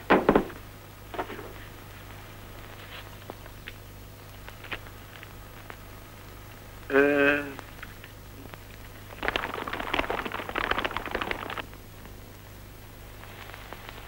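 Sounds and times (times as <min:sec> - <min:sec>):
horses galloping hoofbeats: 0:09.1 - 0:11.7.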